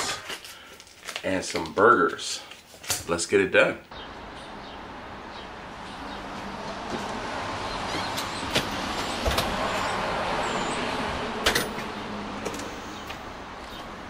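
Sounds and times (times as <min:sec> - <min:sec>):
passing road vehicle hiss: 0:04.2 - 0:14.0.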